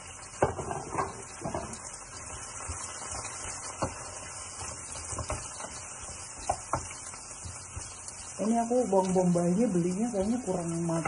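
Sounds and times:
onions sizzling in a pan: 0.0 - 11.0.

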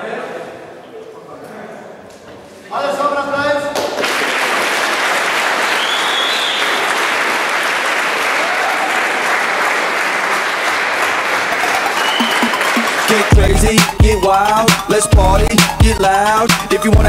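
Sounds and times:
crowd applauding: 3.8 - 13.4
hip-hop music with heavy bass: 12.4 - 17.0.

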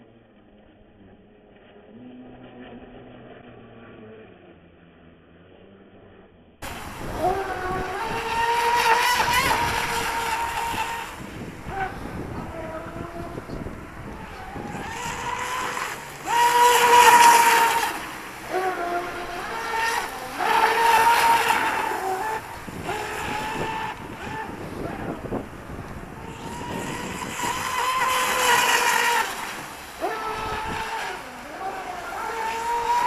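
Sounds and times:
electric motor high whine: 0.0 - 33.0.

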